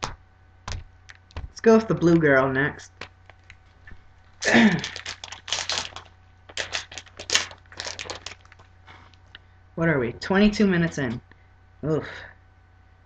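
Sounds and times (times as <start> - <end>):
plastic wrapper crinkling and tearing: 3.0 - 9.4.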